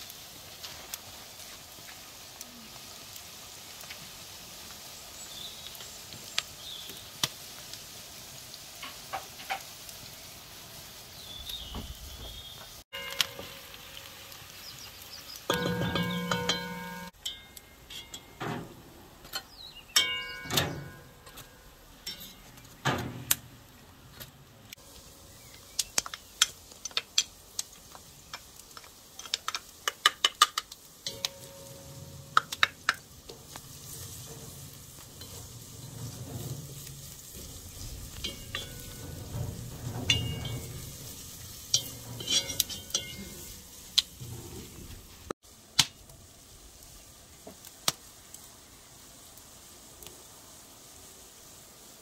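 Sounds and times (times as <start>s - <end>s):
onions sizzling: 0.0s - 52.0s
metal pans clinking: 15.5s - 23.4s, 28.7s - 45.1s
wooden spoon scraping metal pot: 31.0s - 45.3s.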